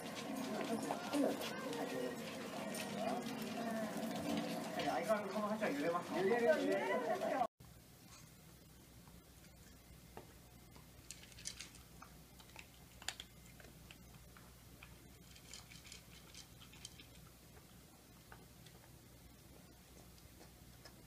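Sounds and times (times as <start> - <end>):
low steady hum: 7.2 - 21.0
dog crunching kibble: 10.8 - 21.0.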